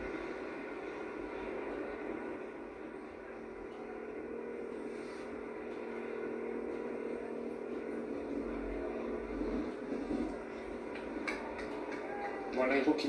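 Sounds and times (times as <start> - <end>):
engine drone through tv speaker: 0.0 - 13.0.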